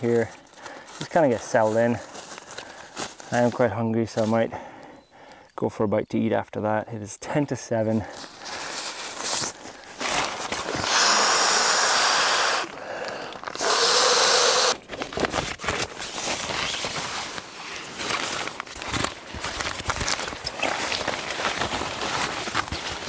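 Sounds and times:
breath blown into valve: 0:10.8 - 0:14.8.

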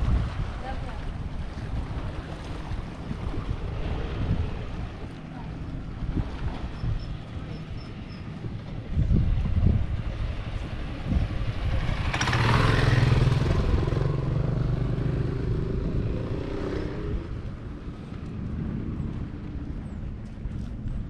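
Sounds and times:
motor scooter riding past: 0:11.1 - 0:17.5.

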